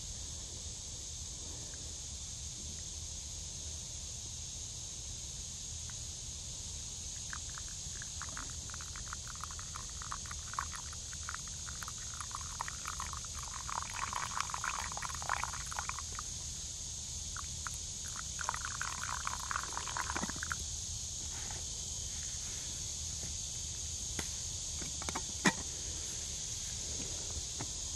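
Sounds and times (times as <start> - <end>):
water pouring and trickling: 7.3 - 16.4, 17.3 - 20.6.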